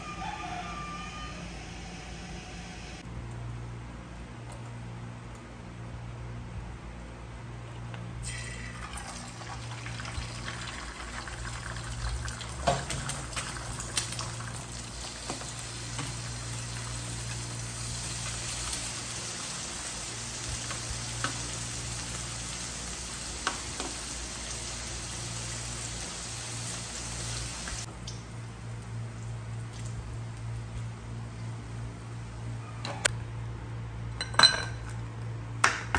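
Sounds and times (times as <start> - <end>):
egg and bacon sizzling in a pan: 9.0 - 30.7.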